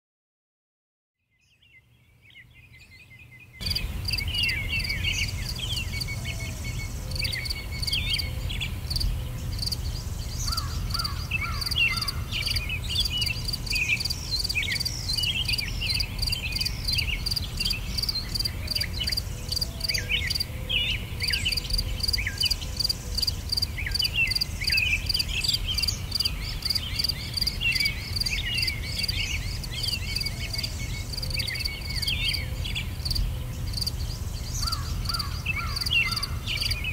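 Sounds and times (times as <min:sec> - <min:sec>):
birds chirping: 0:01.4 - 0:36.9.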